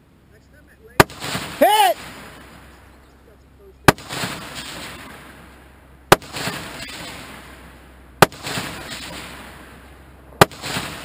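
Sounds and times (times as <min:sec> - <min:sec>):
loud gunshots: 0:01.0 - 0:02.6, 0:03.9 - 0:05.4, 0:06.1 - 0:09.8, 0:10.4 - 0:11.0.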